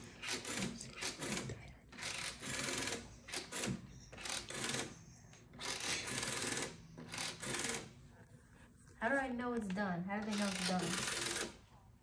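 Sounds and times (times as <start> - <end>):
rotary telephone dial whirring: 0.0 - 8.0, 10.2 - 11.6.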